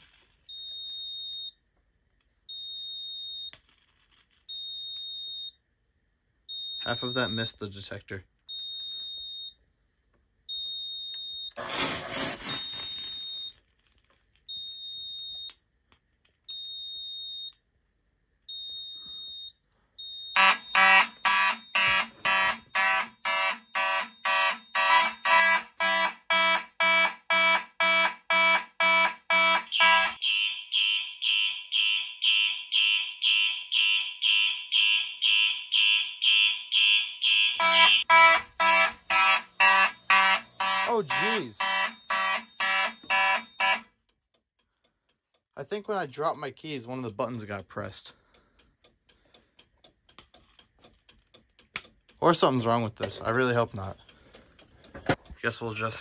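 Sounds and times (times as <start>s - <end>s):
fire alarm horns pulsing: 20.0s - 44.0s
high electronic beep: 26.4s - 43.8s.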